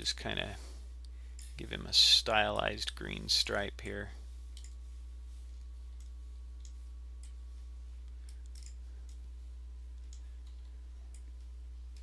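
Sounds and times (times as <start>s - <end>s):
low electrical hum: 0.0s - 12.0s
computer mouse clicks: 4.6s - 4.8s, 8.2s - 9.2s.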